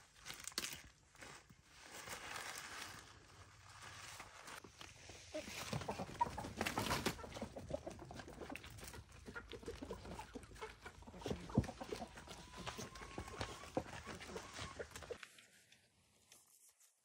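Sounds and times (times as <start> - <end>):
chickens clucking: 5.2 - 15.2.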